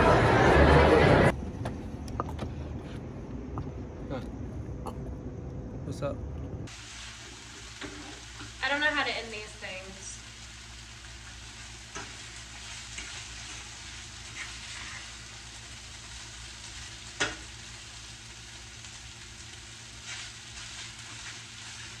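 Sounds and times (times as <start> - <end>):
food sizzling in a pan: 6.7 - 22.0.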